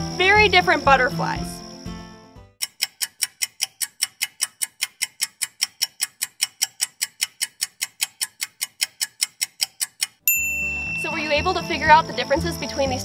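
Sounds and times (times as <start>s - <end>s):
clock ticking: 2.6s - 10.3s.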